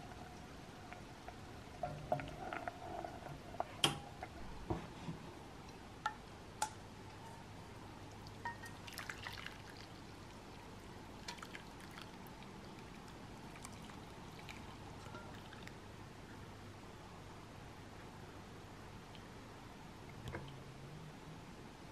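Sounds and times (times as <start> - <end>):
syrup pouring and dripping: 8.1 - 15.8.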